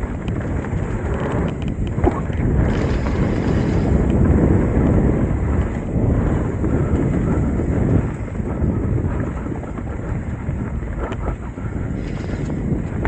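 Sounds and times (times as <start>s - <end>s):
bike tyres rolling on dirt trail: 0.0s - 13.0s
wind on microphone: 0.0s - 13.0s.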